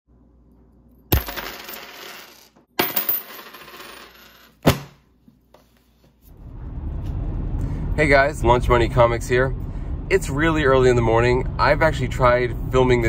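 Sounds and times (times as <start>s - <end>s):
coins jingling on a tabletop: 1.1s - 4.6s.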